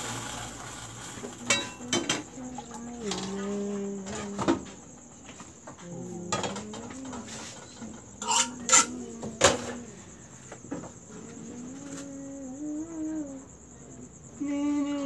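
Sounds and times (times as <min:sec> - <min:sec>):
kitchenware clinking: 0:01.4 - 0:02.2, 0:06.3 - 0:09.8
faint wavering voice: 0:01.6 - 0:04.8, 0:05.7 - 0:15.0.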